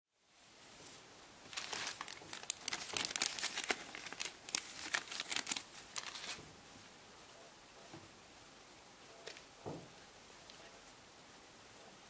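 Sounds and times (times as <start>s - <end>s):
plastic bag crinkling: 1.4s - 6.4s.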